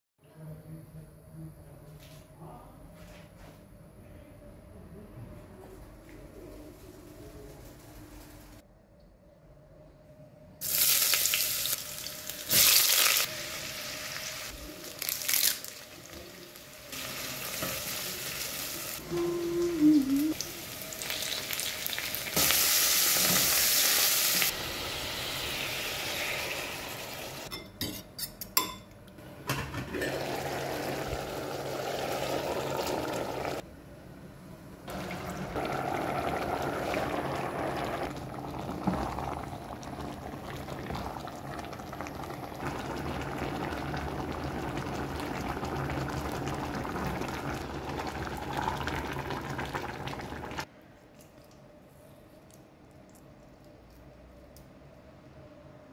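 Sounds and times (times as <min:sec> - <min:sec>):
food sizzling in hot oil: 0:10.6 - 0:19.0, 0:20.3 - 0:27.5, 0:30.1 - 0:33.6.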